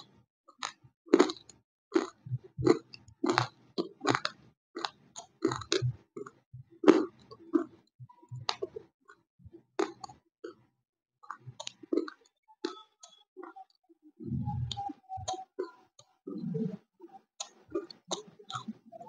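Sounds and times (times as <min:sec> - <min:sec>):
wet mouth clicks: 0:00.6 - 0:08.9, 0:09.8 - 0:10.6, 0:11.2 - 0:16.8, 0:17.4 - 0:18.8
person chewing crunchy snack: 0:01.2 - 0:05.8, 0:11.3 - 0:12.8.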